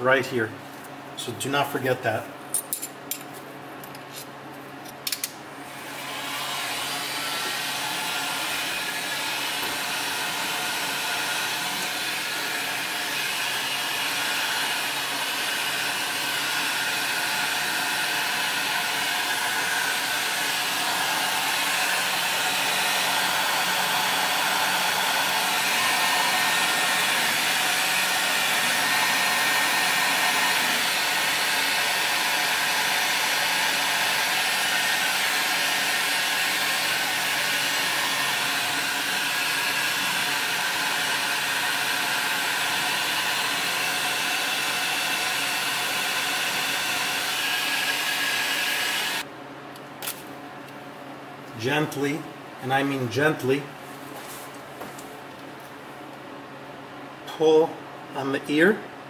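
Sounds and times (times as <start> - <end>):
electric heat gun blowing: 5.6 - 49.3.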